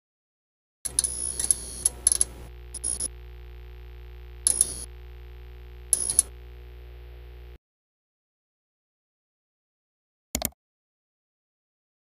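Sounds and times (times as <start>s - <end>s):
synthesized drone: 0.9s - 7.6s.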